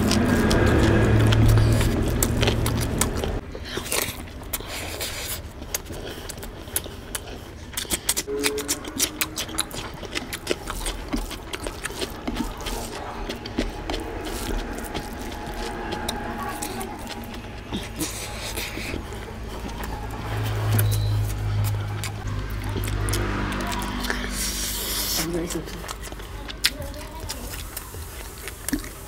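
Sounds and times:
hand squishing rice and gravy: 0.0s - 21.7s
chewing: 0.0s - 29.0s.

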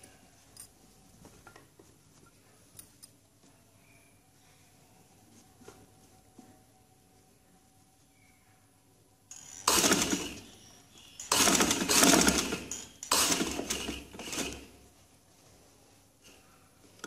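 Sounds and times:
sewing machine stitching: 9.3s - 10.5s, 11.2s - 14.8s.

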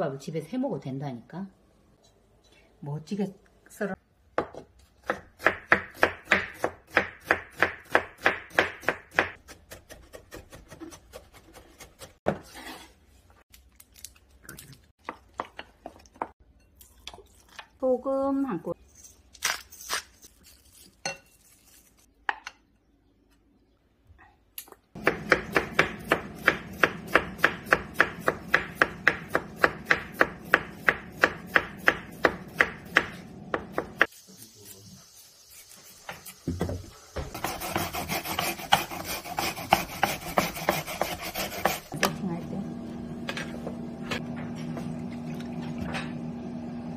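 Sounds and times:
knife chopping on wooden board: 4.4s - 12.4s, 25.0s - 34.1s, 36.1s - 42.0s
onion rasping on plastic grater: 37.4s - 42.0s.

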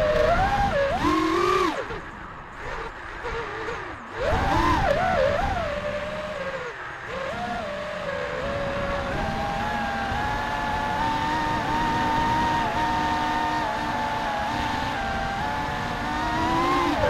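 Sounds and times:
quadcopter motors whining: 0.0s - 17.0s
rush of wind: 0.0s - 17.0s.

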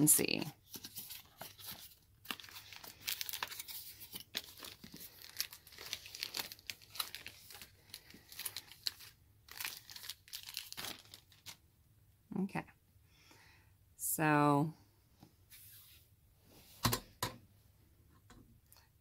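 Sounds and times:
plastic bag rustling and crackling: 0.7s - 11.6s.

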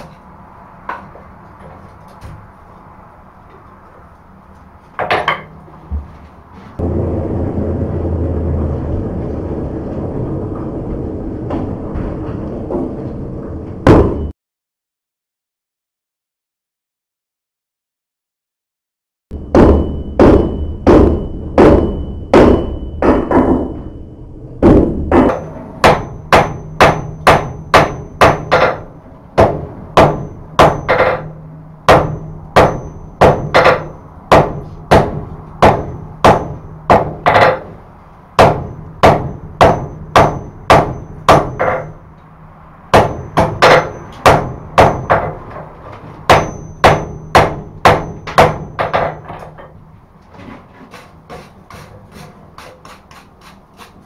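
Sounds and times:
hammer striking metal on anvil: 5.0s - 5.6s, 19.4s - 24.0s, 24.6s - 37.8s, 38.4s - 42.1s, 42.9s - 49.8s.

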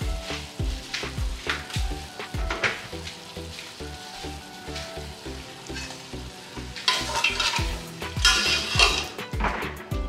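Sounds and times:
chicken sizzling in a pot: 0.0s - 9.8s
spoon stirring and scraping pot: 6.7s - 9.3s.

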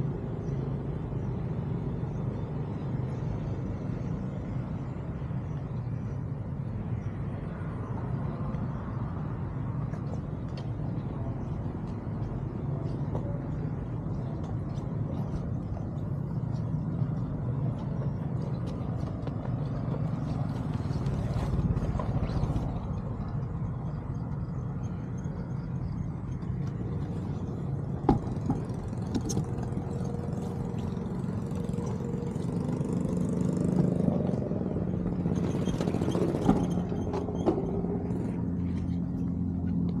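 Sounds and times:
small motorbike engine running: 26.5s - 38.9s.

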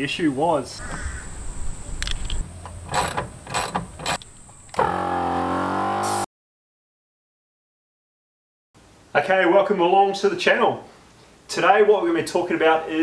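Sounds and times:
metal sockets and ratchet clicking: 2.0s - 4.8s.

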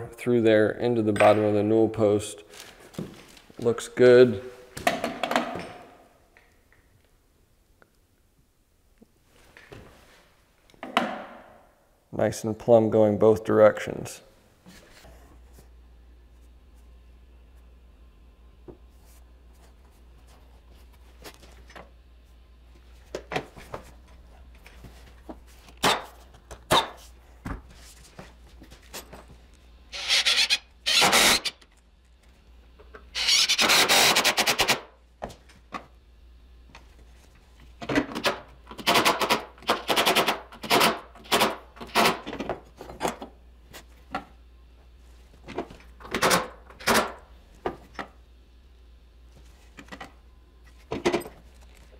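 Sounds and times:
rasping bursts: 29.9s - 31.6s, 33.2s - 34.8s.

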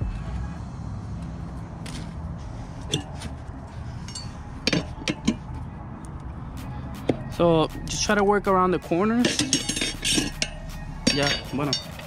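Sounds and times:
low steady rumble: 0.0s - 11.8s
tire irons clinking on wheel rim: 1.7s - 6.3s, 8.9s - 12.0s.

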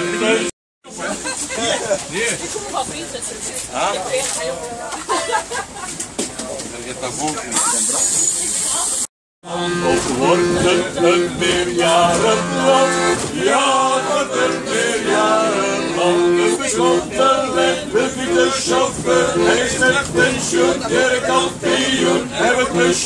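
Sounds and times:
button accordion playing: 0.0s - 0.5s, 9.4s - 23.0s
group of people singing: 9.5s - 23.0s.

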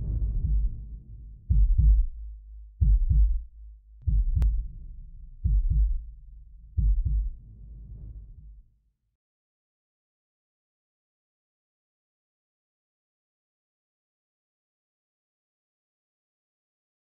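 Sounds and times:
deep heartbeat-like double thuds: 0.0s - 8.6s.

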